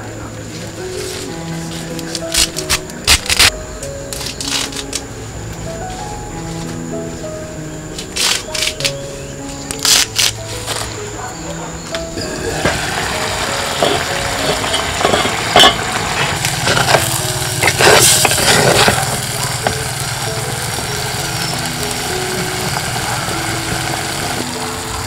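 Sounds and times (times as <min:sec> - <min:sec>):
soft background music: 0:00.0 - 0:25.0
ladle scraping clay pot: 0:12.1 - 0:19.7.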